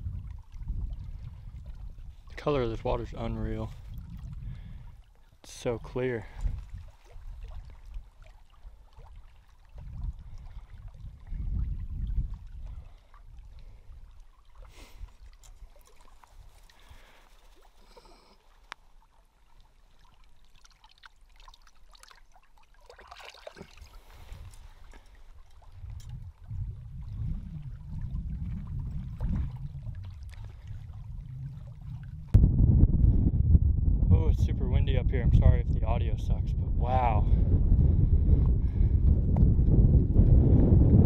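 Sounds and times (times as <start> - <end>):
wind buffeting microphone: 0.0 - 14.2, 24.0 - 41.0
small waves lapping on rocks: 12.1 - 26.5.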